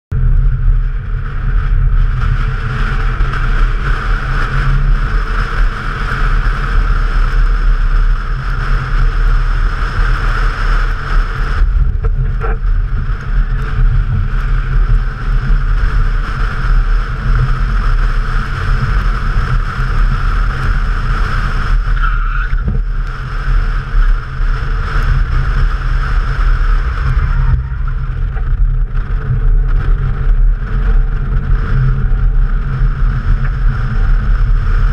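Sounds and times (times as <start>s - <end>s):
car engine: 0.1s - 34.9s
wind buffeting: 21.8s - 34.9s.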